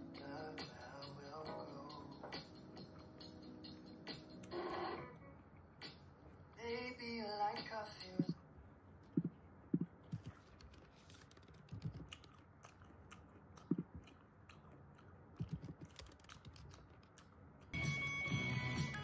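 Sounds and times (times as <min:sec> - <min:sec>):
background music: 0:00.0 - 0:05.0, 0:17.8 - 0:19.0
chewing and crunching food: 0:10.1 - 0:17.8.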